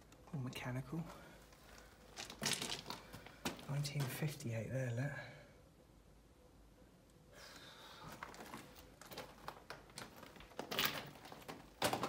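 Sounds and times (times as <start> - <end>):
footsteps crunching on ballast: 1.6 - 4.2, 8.1 - 12.0.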